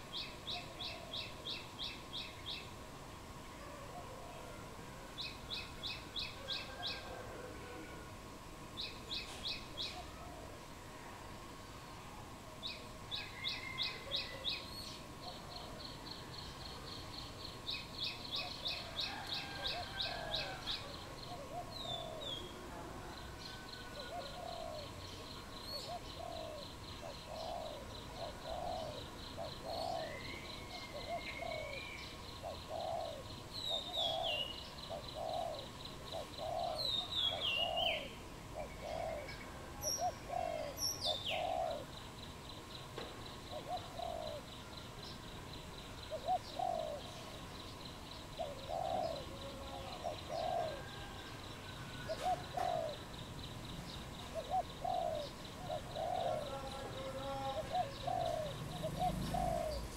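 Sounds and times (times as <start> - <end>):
dove cooing: 0.0 - 1.4, 3.6 - 5.0, 6.3 - 8.2, 13.2 - 14.6, 18.4 - 25.0, 25.7 - 42.0, 43.5 - 44.5, 46.1 - 47.4, 48.3 - 53.3, 54.3 - 59.9.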